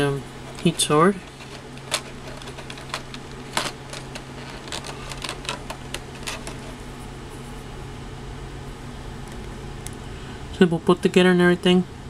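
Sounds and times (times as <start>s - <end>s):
steady low hum: 0.0s - 12.0s
plastic parts clicking and tapping: 0.6s - 6.8s.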